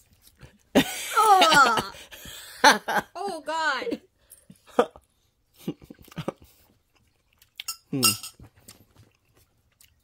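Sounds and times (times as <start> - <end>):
person humming reaction: 1.1 - 2.0
mouth tasting sounds: 5.6 - 10.0.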